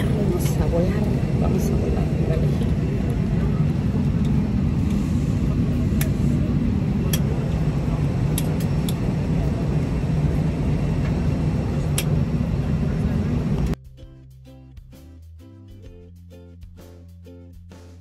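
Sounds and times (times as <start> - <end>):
airliner cabin rumble: 0.0 - 13.8.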